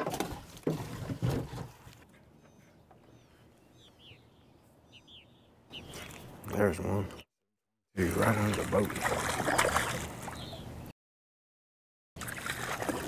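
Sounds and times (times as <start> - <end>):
small birds chirping: 2.1 - 7.3, 10.2 - 10.9.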